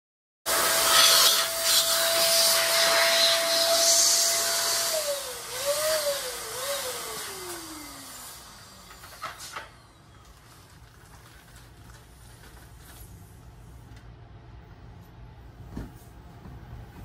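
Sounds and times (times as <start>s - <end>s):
electric balloon pump whining: 0.5s - 10.4s.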